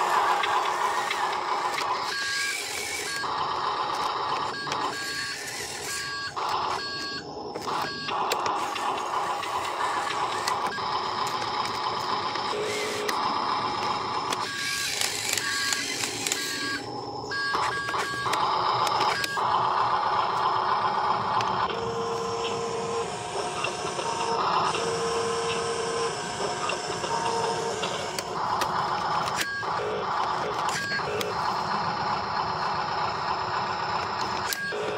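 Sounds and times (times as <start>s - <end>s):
toy truck motors whirring: 0.0s - 34.9s
short electronic beeps: 4.4s - 7.2s, 7.8s - 8.2s.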